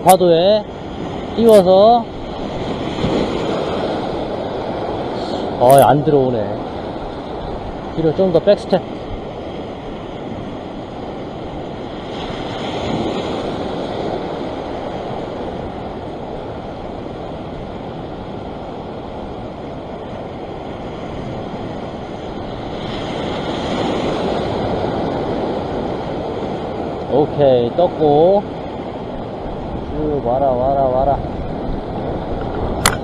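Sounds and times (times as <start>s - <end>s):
ocean waves breaking on rocks: 0.0s - 33.0s.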